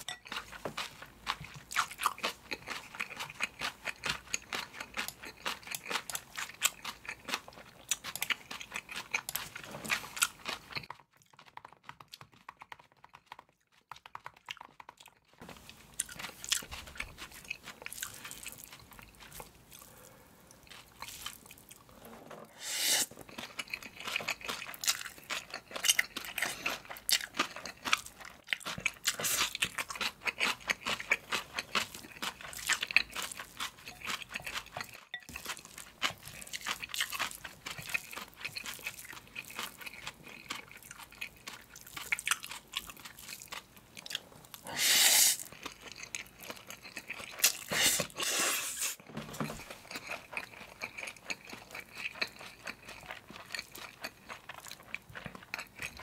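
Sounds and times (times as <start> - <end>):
wet chewing with crunches: 0.0 - 56.0
loud noodle slurp: 22.0 - 23.2, 44.6 - 45.5, 47.5 - 49.0.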